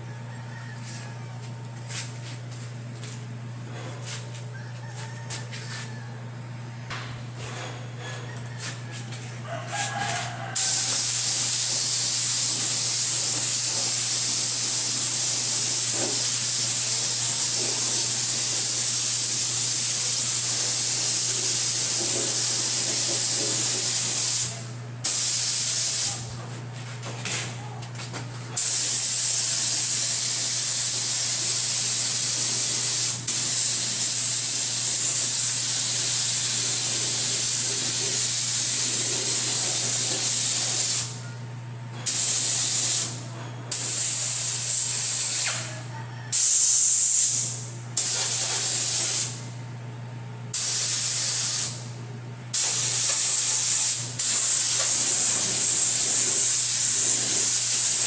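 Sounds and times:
spray gun hissing: 10.6 - 26.2, 28.6 - 41.1, 42.1 - 45.6, 46.3 - 49.4, 50.5 - 51.8, 52.6 - 58.0.

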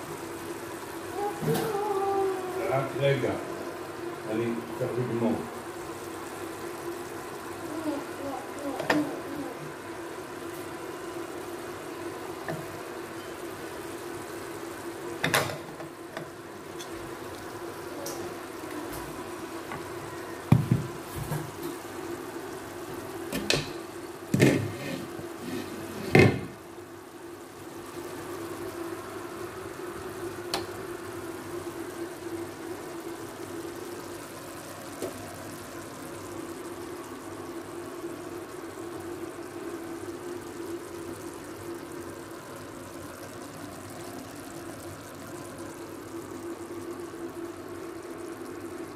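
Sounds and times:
steady hum with low hiss: 0.0 - 48.9
skillet knocking on stove grate: 20.5 - 21.0.

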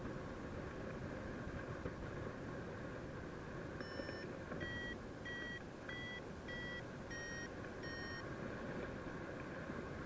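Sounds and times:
variometer beeping: 3.8 - 8.3.

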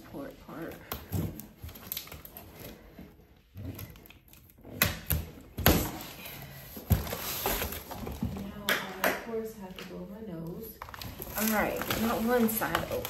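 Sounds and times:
package rustling: 10.8 - 13.0.

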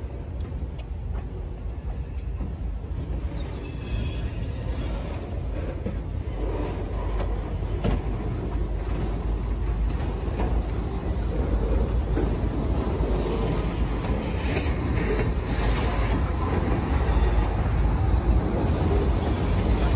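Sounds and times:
faint high squeal: 3.2 - 5.5
freight car wheels rumbling: 4.4 - 19.9.

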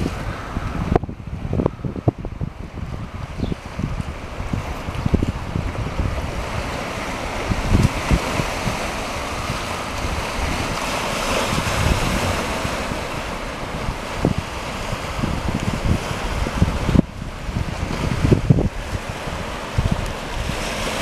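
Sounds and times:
waves washing onto rocky shore: 0.0 - 21.0
wind buffeting microphone: 0.0 - 21.0.

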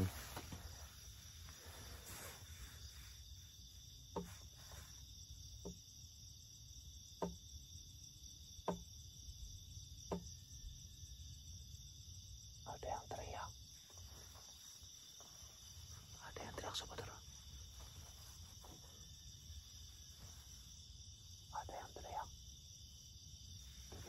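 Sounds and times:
crickets chirring: 0.0 - 24.0
short sharp knocks: 8.6 - 8.9.

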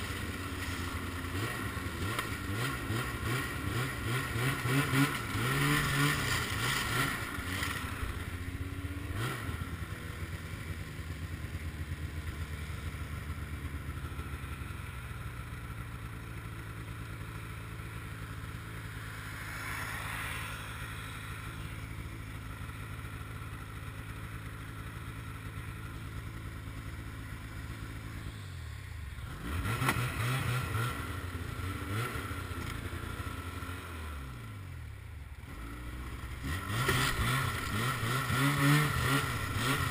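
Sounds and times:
snowmobile engine revving: 0.0 - 10.0, 29.2 - 34.0, 35.5 - 39.9
car passing: 18.9 - 21.8.

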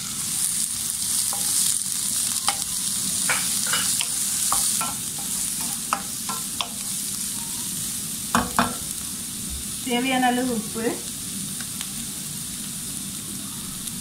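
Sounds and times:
vegetables sizzling in hot oil: 0.0 - 14.0
spatula tapping pan: 2.4 - 6.9, 8.3 - 8.9.

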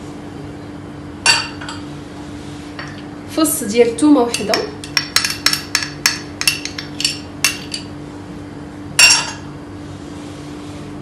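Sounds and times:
metal spoon clinking against bowl: 4.3 - 7.9, 9.0 - 9.4.

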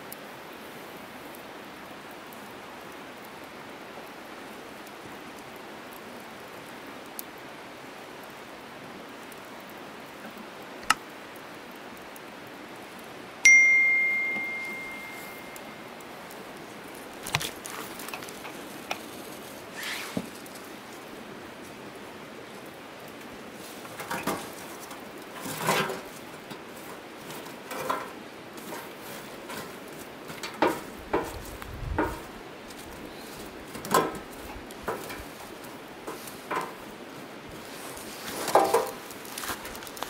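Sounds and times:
steady outdoor hiss: 0.0 - 40.0
metallic ding ringing: 13.5 - 15.9.

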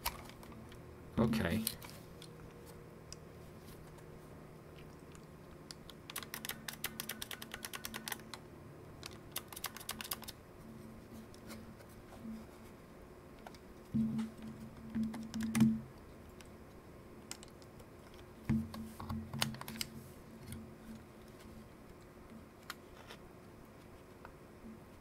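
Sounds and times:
plastic parts clicking and rubbing: 0.0 - 0.8, 4.8 - 8.4, 9.0 - 10.4, 17.2 - 23.2.

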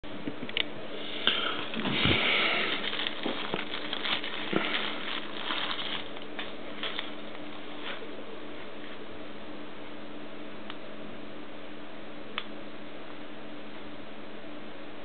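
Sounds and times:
plastic wrapping crinkling: 1.3 - 8.0.

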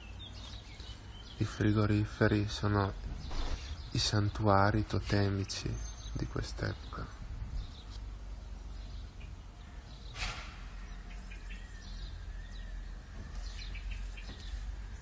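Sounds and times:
bird chirps: 0.0 - 2.0, 3.1 - 4.4, 5.4 - 15.0
steady low rumble: 1.0 - 10.1
brief noisy burst: 3.3 - 3.7, 10.2 - 10.6.

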